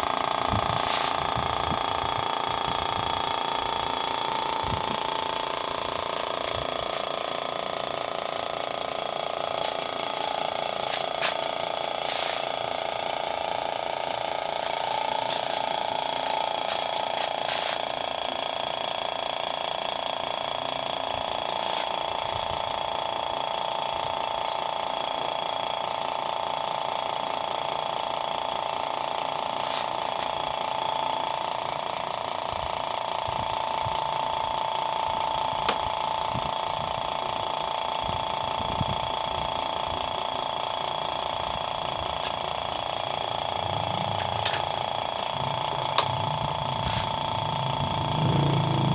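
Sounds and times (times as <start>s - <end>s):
vacuum pump motor whine: 0.0s - 48.9s
hoses and fittings clicking: 32.7s - 48.9s.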